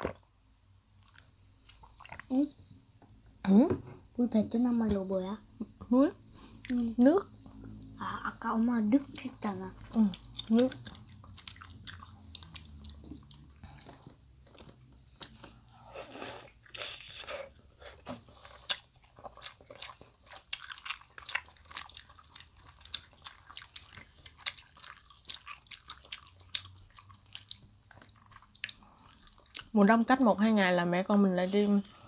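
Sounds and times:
chewing mouth clicks and smacks: 10.1 - 15.4, 18.6 - 29.7.

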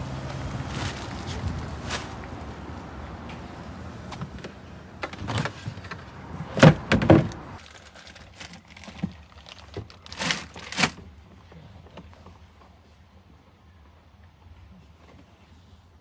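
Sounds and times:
shopping thudding into van: 5.0 - 7.6.

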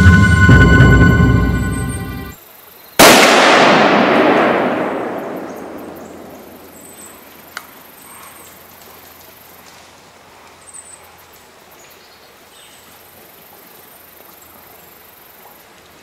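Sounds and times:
background music: 0.0 - 2.4
rifle shot echoing: 3.0 - 7.1.

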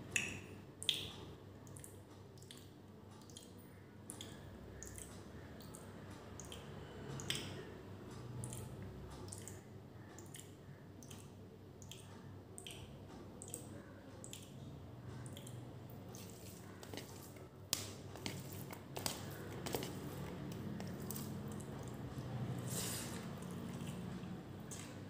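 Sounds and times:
fingers squishing wet rice: 15.2 - 25.0
chewing: 18.1 - 25.0.

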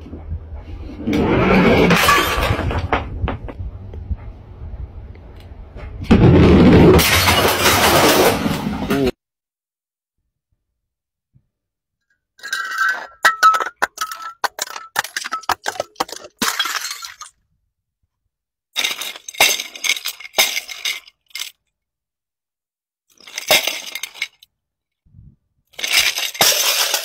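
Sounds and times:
glass containers tumbling down steps: 1.8 - 3.6, 6.2 - 8.8, 12.4 - 17.4, 18.8 - 21.6, 23.1 - 24.5, 25.7 - 27.0
toy cars rattling: 12.4 - 17.3, 18.8 - 21.7, 23.1 - 24.5, 25.7 - 27.0.

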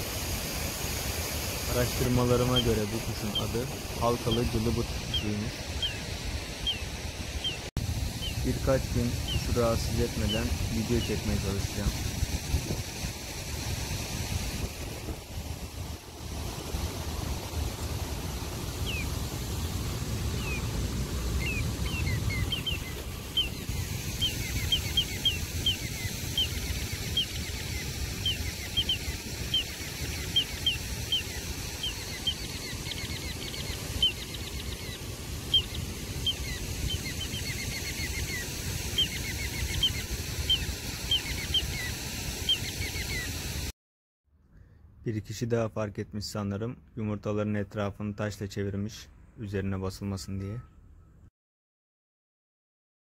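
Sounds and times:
wind rumbling on microphone: 0.0 - 43.7
bird calling with whistled notes: 1.8 - 8.6, 18.8 - 19.1, 21.4 - 43.4.

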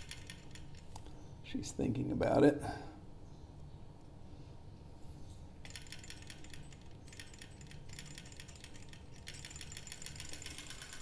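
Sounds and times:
model engine clicking rapidly: 5.7 - 11.0.

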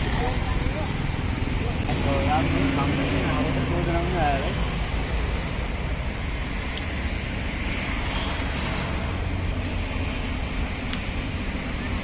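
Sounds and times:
low traffic rumble: 0.0 - 12.0.

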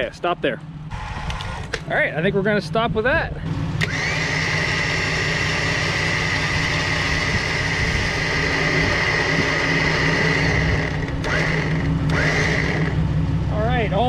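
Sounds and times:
electric winch motor whine: 0.9 - 1.8, 3.8 - 13.1.

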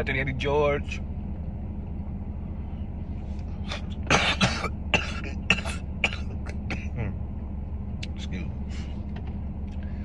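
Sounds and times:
man coughing: 3.7 - 7.2.

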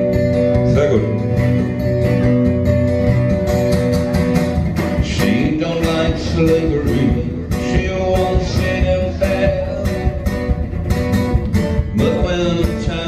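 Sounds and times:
acoustic guitars strumming: 0.0 - 13.0
person singing: 4.9 - 10.6, 11.8 - 13.0.

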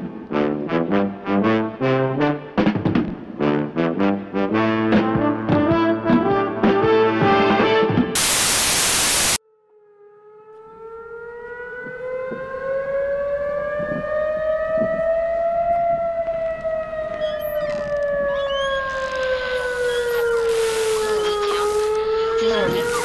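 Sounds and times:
air-raid siren wailing: 8.2 - 23.0.

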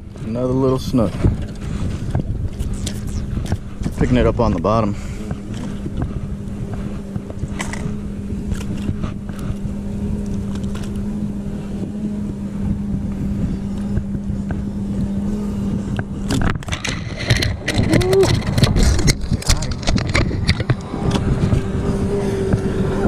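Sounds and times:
motorboat engine running: 0.0 - 23.0
wind rumble on microphone: 0.0 - 23.0
clicks and handling noise: 10.2 - 11.1, 15.9 - 21.7.

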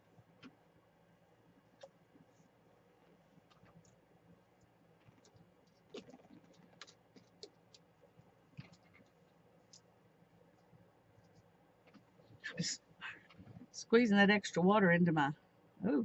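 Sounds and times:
faint small clicks and taps: 4.6 - 12.4.

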